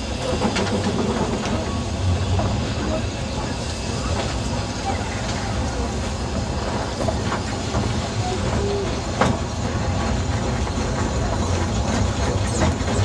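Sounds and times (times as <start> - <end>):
train coaches rumbling and rattling: 0.0 - 13.0.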